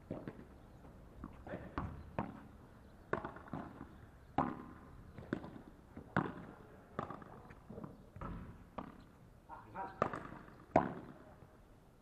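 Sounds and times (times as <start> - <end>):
ball bouncing on court: 0.0 - 0.5, 1.2 - 9.1, 9.8 - 11.3
ball popping off rackets: 3.0 - 9.0.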